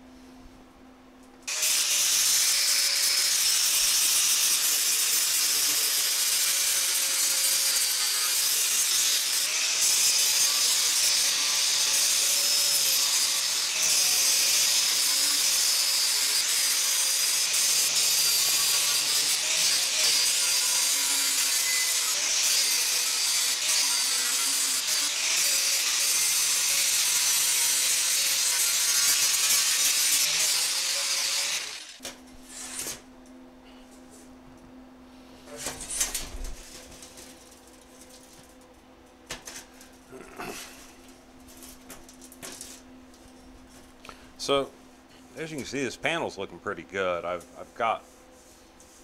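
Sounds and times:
angle grinder grinding metal: 1.5 - 33.0.

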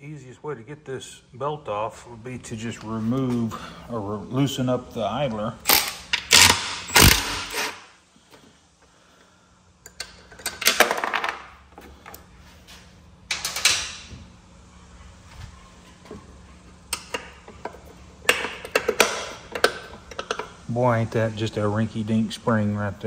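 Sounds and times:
impact driver bursts: 5.7 - 7.9.

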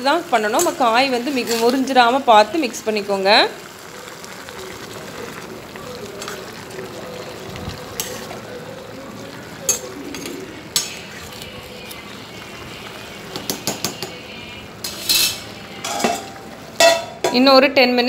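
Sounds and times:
vegetables hissing in pot: 0.3 - 16.8
spoon clinking against pot: 9.7 - 11.0, 14.8 - 17.4.

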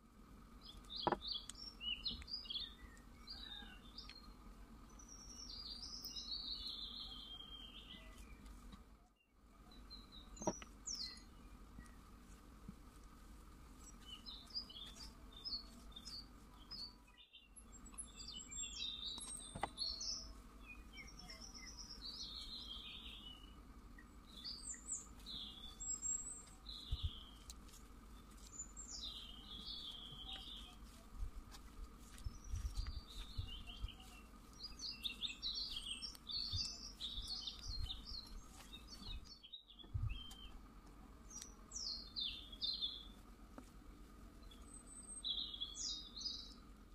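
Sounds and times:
small birds chirping: 0.0 - 46.9.

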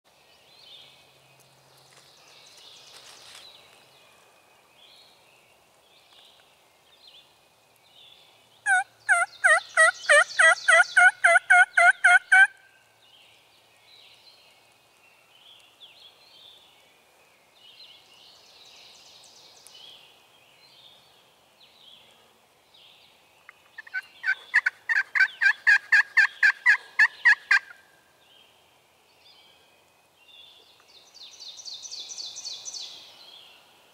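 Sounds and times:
songbird chirps: 0.1 - 33.9
turkey yelping: 8.7 - 12.5, 23.8 - 27.8.

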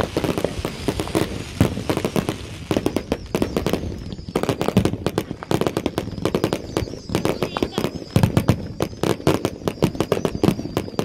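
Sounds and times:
fireworks popping and crackling: 0.0 - 11.0.

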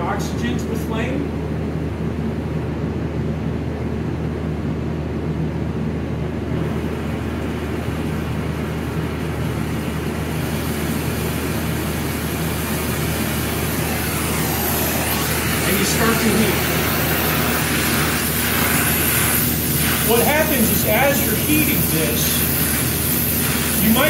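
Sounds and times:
torch flame rumbling and hissing: 5.9 - 24.0.

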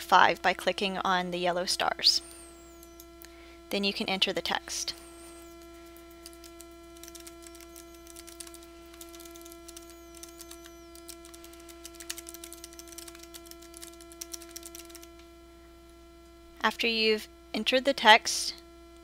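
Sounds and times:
steady electrical hum: 0.0 - 19.0
computer keyboard typing: 5.4 - 15.1.

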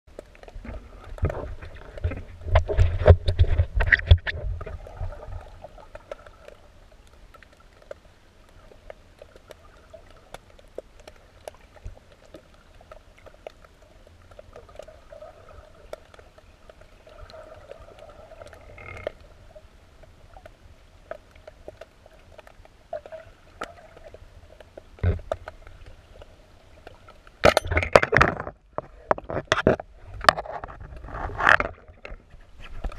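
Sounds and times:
muffled underwater water noise: 0.1 - 32.9
small clicks and crackles: 0.1 - 32.9
rumbling water and bubble bursts: 0.4 - 6.7.

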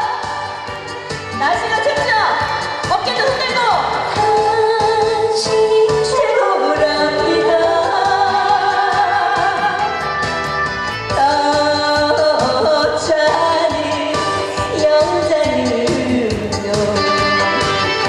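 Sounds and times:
instrumental accompaniment with beat: 0.0 - 18.0
woman singing into microphone: 4.0 - 9.9, 11.1 - 17.7.

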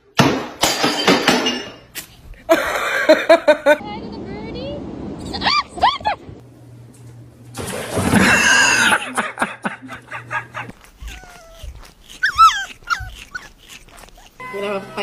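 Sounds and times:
small dog whimpering and yelping: 10.8 - 14.4.

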